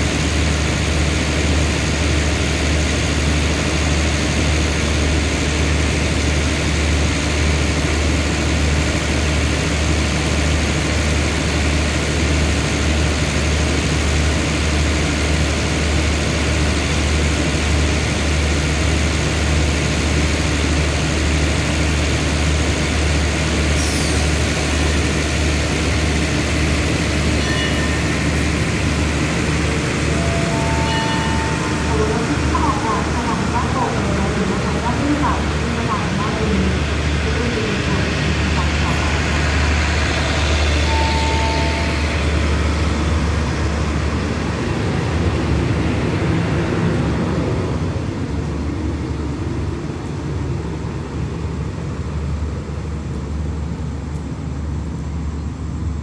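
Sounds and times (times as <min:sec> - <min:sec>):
diesel engine droning: 0:23.9 - 0:50.0.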